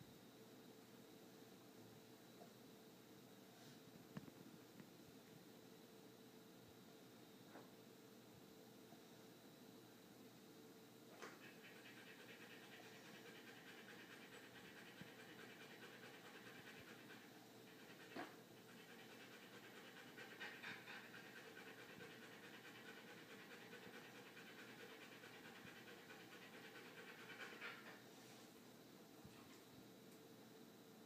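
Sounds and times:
dog panting: 11.2 - 28.1.

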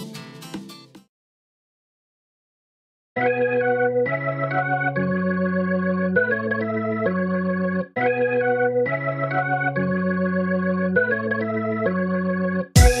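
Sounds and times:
organ-like keyboard chords: 3.2 - 13.0
drum beat: 12.8 - 13.0.

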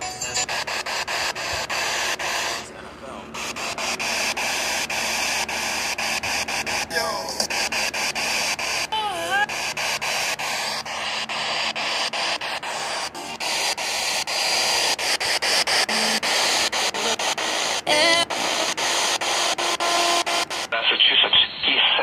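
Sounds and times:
radio static hiss and crackles: 0.0 - 22.0
garbled radio voice: 6.6 - 8.2, 8.9 - 10.0, 14.6 - 19.0, 19.9 - 22.0.

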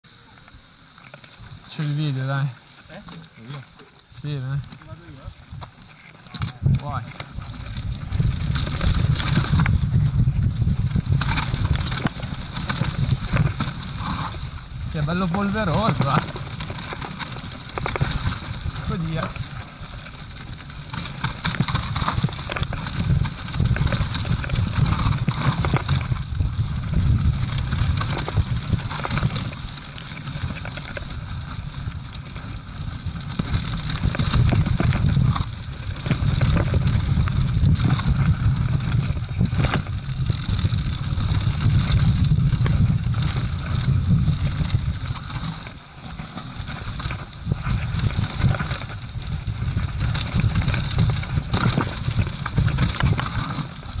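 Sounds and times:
bike tyres on loose dirt: 0.0 - 54.0
wind rumbling on microphone: 0.0 - 54.0
bike chain and frame rattling: 0.1 - 54.0.

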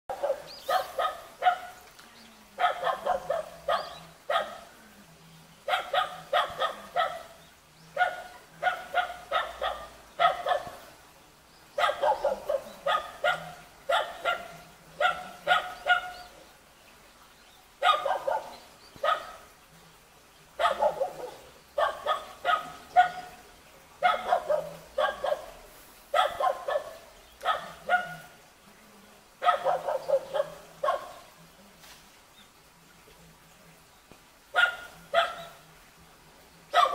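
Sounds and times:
dog barking sharply: 8.0 - 10.8, 11.8 - 16.1, 20.6 - 23.2, 24.0 - 25.5, 26.2 - 28.2.

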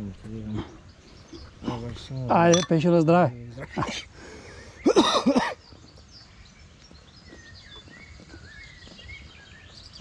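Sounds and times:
faint bird chirps: 0.0 - 10.0
man's hoarse cough-like vocal burst: 4.9 - 5.6.

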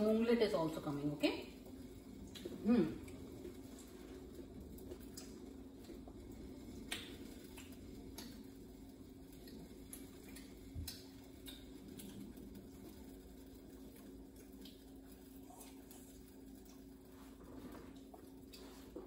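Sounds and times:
batter frying crackles and pops: 0.0 - 19.0
steady low hum: 0.0 - 19.0.

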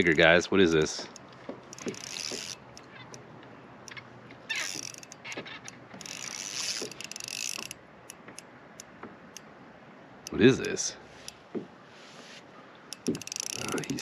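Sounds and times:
fishing reel ratcheting and whirring: 0.0 - 0.4, 1.1 - 3.3, 3.9 - 8.5, 12.9 - 14.0.

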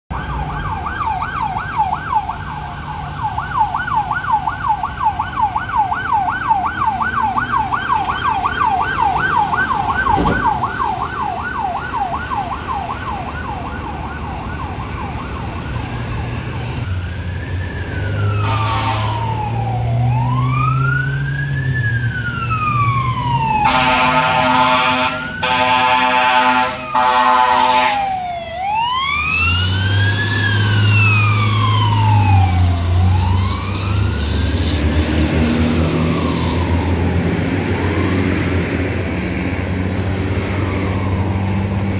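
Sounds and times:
electronic siren yelp: 0.1 - 38.7
diesel engine hum: 0.1 - 41.9
siren wail: 0.1 - 41.9
air horn blasts: 18.4 - 19.3, 23.6 - 28.1.

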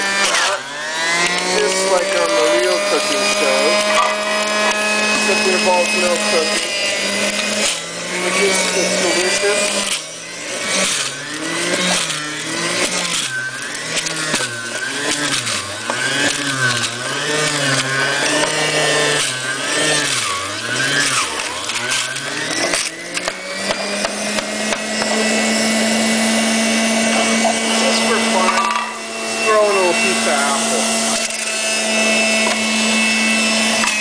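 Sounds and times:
juicer motor running: 0.0 - 34.0.

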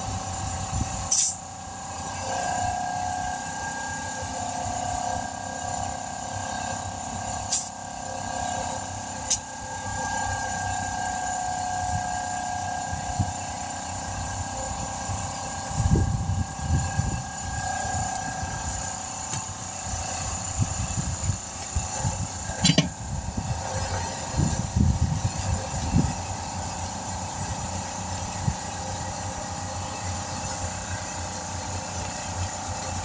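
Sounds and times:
tire knocks and bumps: 20.2 - 23.2.

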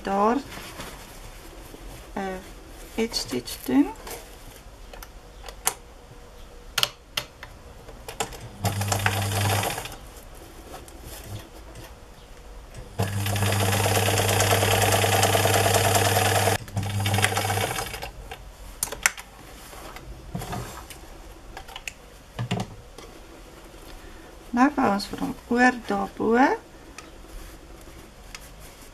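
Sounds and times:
sewing machine stitching: 8.6 - 10.0, 13.0 - 18.1.

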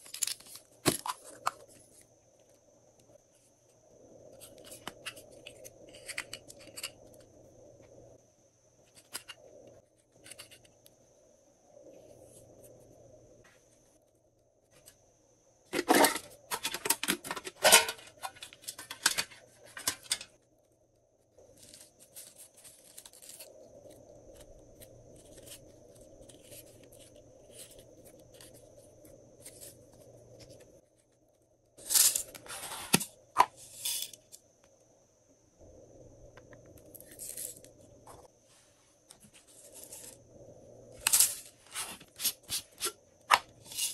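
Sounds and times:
handling rustle: 21.4 - 34.3.

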